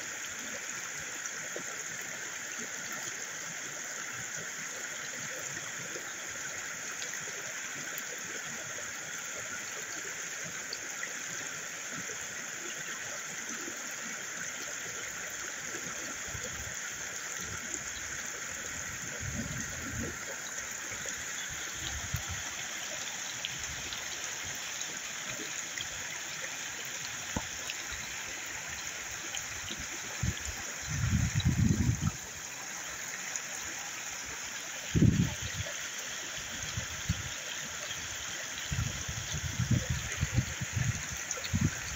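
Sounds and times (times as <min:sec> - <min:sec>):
creek water flowing: 0:00.0 - 0:41.9.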